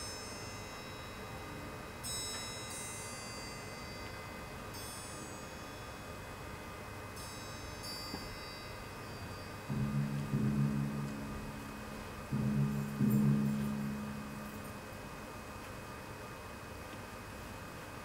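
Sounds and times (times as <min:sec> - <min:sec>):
high metal chimes: 0:00.0 - 0:06.5, 0:07.1 - 0:15.5
orchestral music: 0:09.7 - 0:14.7.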